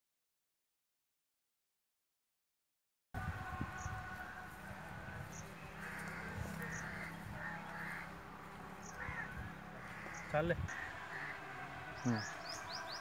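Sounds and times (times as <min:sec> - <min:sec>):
harsh caw-like bird calls: 0:03.5 - 0:13.0.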